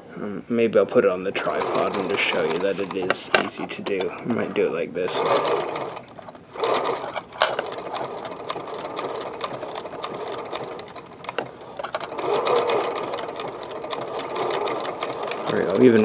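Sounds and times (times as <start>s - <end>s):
electric sewing machine stitching: 1.2s - 16.0s.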